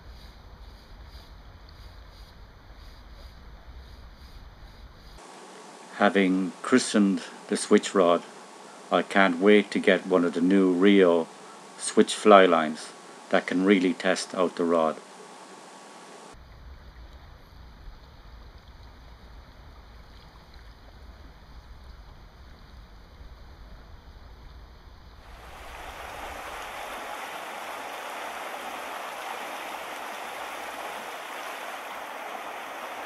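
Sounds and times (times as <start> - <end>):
river water flowing: 25.2 - 33.0.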